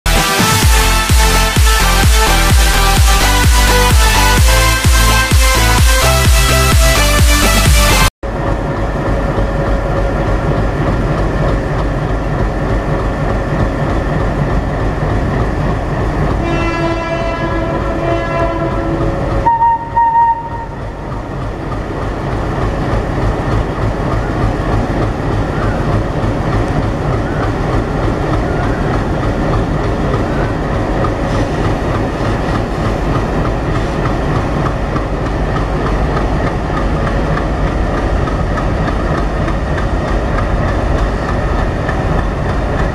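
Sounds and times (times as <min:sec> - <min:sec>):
diesel locomotive engines chugging: 0:00.1 - 0:42.9
wheels clacking over rail joints: 0:08.3 - 0:42.9
locomotive horn: 0:16.4 - 0:21.0.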